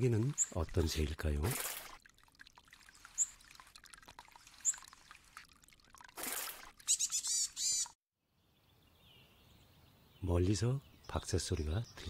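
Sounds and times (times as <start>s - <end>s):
water splash: 0.0s - 7.3s
stream trickling over rocks: 0.0s - 8.0s
high sliding bird calls: 6.8s - 8.0s.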